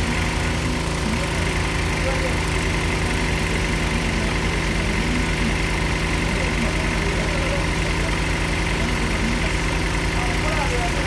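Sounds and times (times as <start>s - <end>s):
drilling rig engine running: 0.0s - 11.0s.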